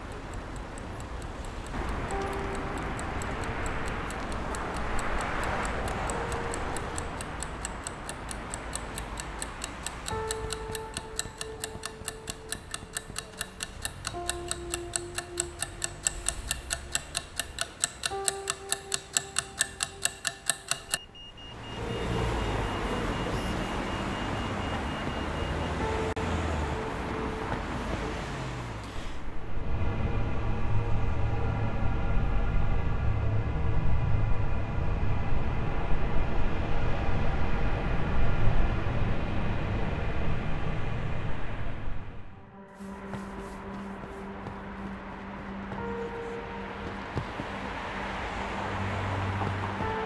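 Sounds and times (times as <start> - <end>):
clock ticking: 0.0 - 21.1, 24.7 - 28.2, 42.8 - 48.2, 49.1 - 50.0
slow melody of held notes: 0.0 - 21.1, 25.4 - 28.4, 42.3 - 50.0.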